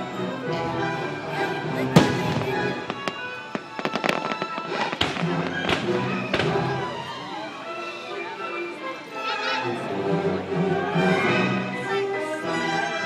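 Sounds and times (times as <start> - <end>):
music: 0.0 - 13.0
fireworks banging and crackling: 1.8 - 7.2.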